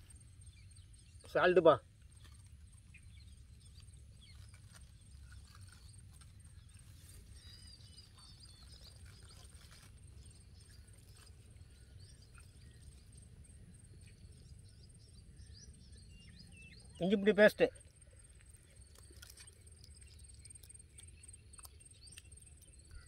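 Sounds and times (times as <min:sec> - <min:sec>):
insect trill: 0:00.0 - 0:23.0
bird chirps: 0:02.1 - 0:23.0.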